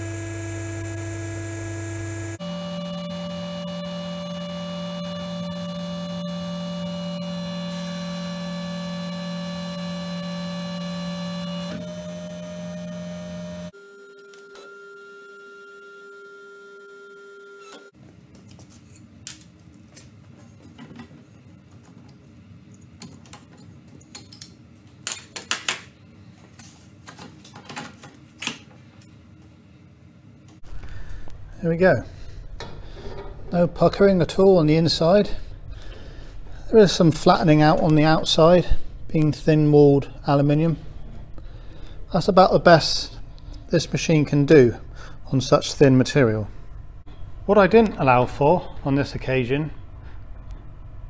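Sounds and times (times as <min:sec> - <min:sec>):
electric motor and hydraulic pump hum: 0:00.0 - 0:18.0.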